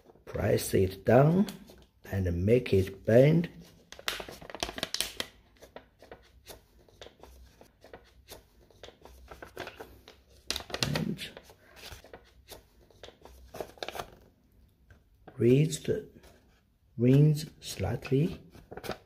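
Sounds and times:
paper crackling and rustling: 0:03.5 - 0:14.3, 0:17.8 - 0:19.0.

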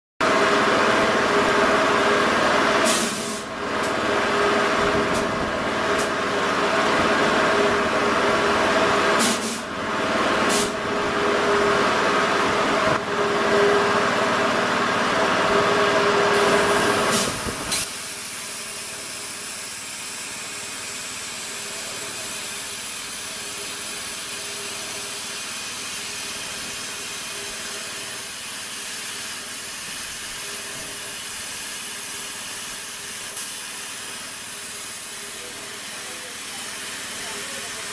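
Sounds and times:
plasma cutter humming and hissing: 0:02.8 - 0:06.4, 0:09.2 - 0:09.8, 0:16.2 - 0:37.9
torch hissing: 0:16.3 - 0:20.8.

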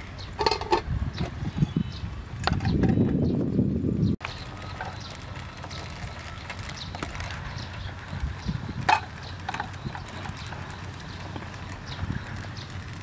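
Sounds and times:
metal utensils clinking: 0:00.4 - 0:00.8.

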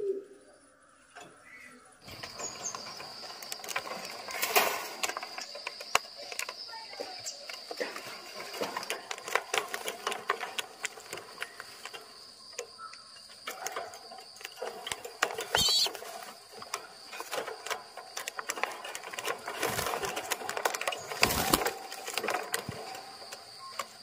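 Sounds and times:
claws and beaks scraping wire mesh: 0:02.0 - 0:24.0
thin high-pitched tone: 0:15.6 - 0:15.9.

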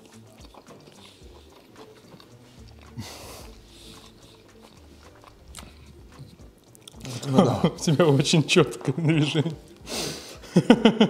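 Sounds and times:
mouth clicks: 0:00.0 - 0:07.8
breathy noise: 0:00.0 - 0:08.1
person chewing food: 0:00.0 - 0:11.0.

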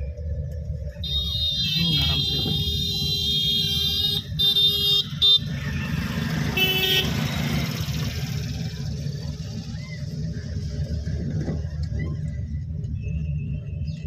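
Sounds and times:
engine and tyre rumble: 0:00.0 - 0:14.0
car horn toot: 0:01.0 - 0:05.5, 0:06.5 - 0:07.2.

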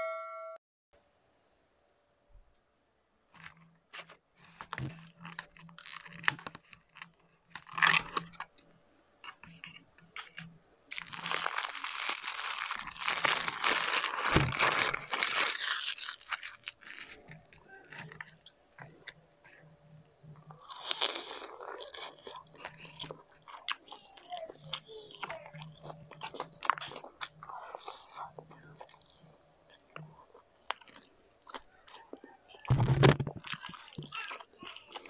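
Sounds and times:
crisp food crunching: 0:03.4 - 0:35.0.

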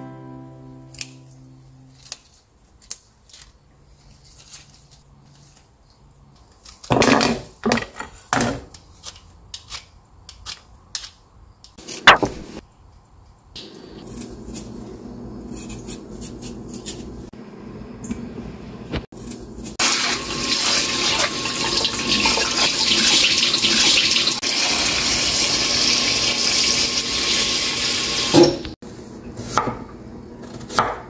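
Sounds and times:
leaves rustling: 0:01.8 - 0:06.9
stems snapping: 0:01.9 - 0:03.6.

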